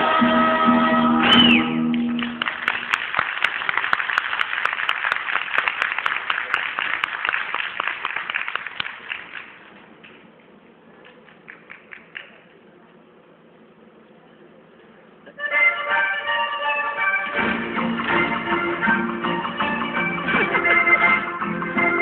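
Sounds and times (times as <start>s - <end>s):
folk dance music with guitars: 0.0s - 2.8s, 15.4s - 22.0s
audience applause: 1.9s - 9.7s.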